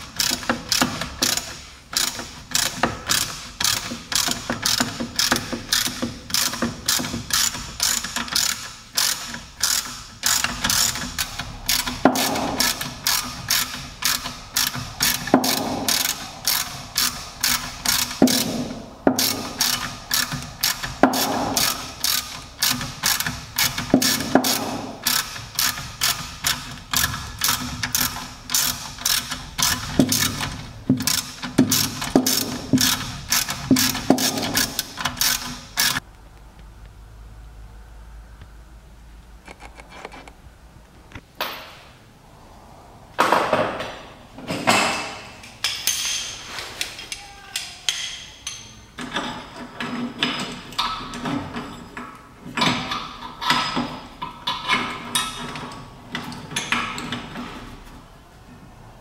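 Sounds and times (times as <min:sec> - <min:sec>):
hand ratchet pawl clicking: 0:00.0 - 0:36.0.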